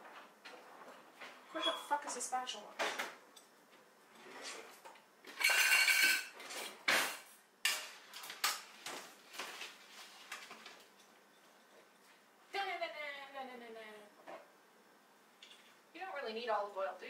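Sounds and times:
metal kitchen utensils clattering: 5.3 - 8.6.

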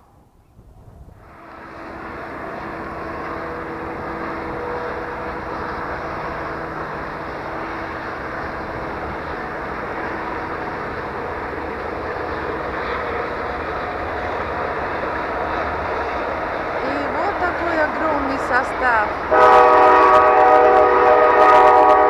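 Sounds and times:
freight train passing: 0.0 - 22.0.

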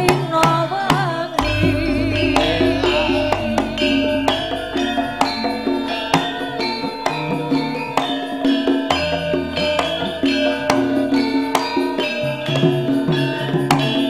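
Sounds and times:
metal bars struck with mallets: 1.4 - 7.7
deep gong ringing: 1.4 - 12.4
gamelan ensemble playing: 1.4 - 14.0.

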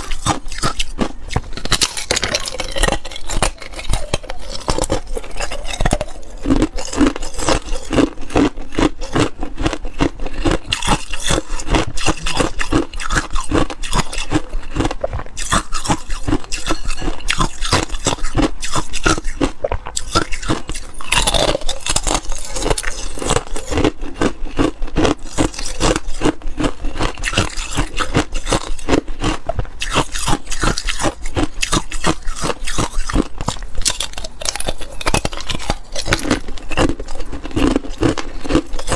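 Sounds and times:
ice cubes crunching: 0.0 - 38.9.

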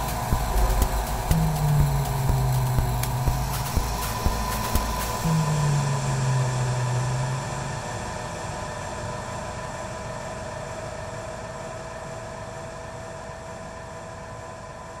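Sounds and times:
noise hiss: 0.0 - 8.1
electronic drone: 0.0 - 8.8.

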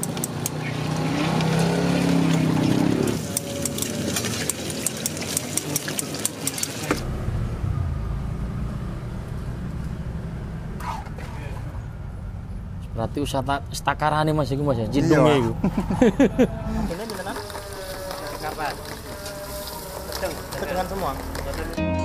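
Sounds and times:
pestle grinding in stone mortar: 2.2 - 6.9, 16.9 - 21.8.

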